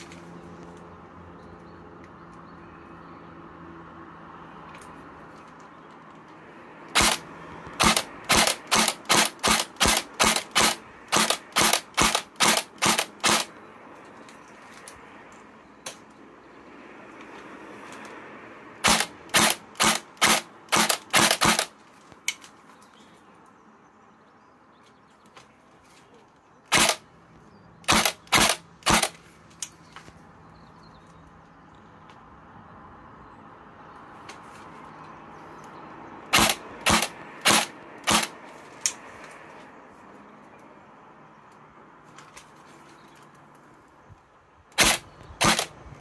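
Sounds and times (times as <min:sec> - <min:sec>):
airsoft gun firing: 0:07.0 - 0:07.2, 0:07.8 - 0:13.5, 0:18.8 - 0:21.7, 0:26.7 - 0:27.0, 0:27.9 - 0:29.2, 0:36.3 - 0:38.4, 0:44.8 - 0:45.8
short sharp noisy bursts: 0:07.0 - 0:13.6, 0:18.8 - 0:21.8, 0:26.7 - 0:27.0, 0:27.8 - 0:29.2, 0:36.3 - 0:38.4, 0:44.8 - 0:46.0.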